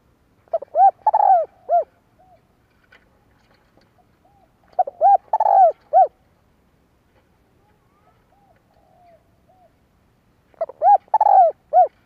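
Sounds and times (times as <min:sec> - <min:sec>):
dove cooing: 0:00.5 - 0:02.5, 0:04.2 - 0:06.2, 0:07.9 - 0:09.8, 0:10.5 - 0:12.0.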